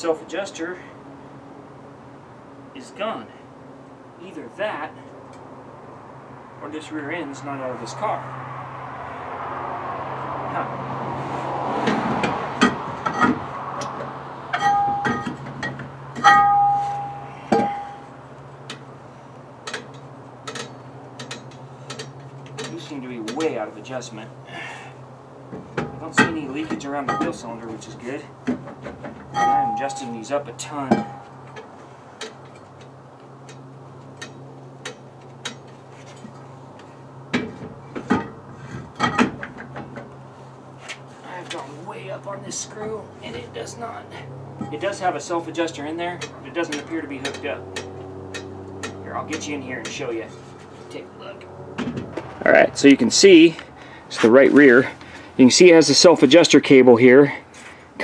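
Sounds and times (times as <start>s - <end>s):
metal ringing from knocks: 11.8s - 18.2s, 25.5s - 35.8s, 36.8s - 40.1s, 44.5s - 45.5s, 46.1s - 50.5s
metal clinking: 12.6s - 18.9s, 19.6s - 23.5s, 29.3s - 38.4s, 46.2s - 50.4s
low steady hum: 12.7s - 28.4s.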